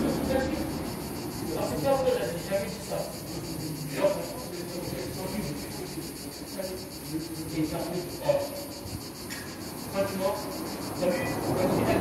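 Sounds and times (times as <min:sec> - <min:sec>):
insects chirring: 0:00.0 - 0:12.0
faint voices: 0:09.9 - 0:12.0.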